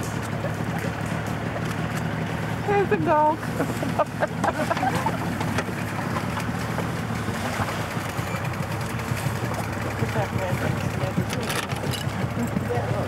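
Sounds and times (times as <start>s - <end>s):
outboard motor droning: 0.0s - 13.0s.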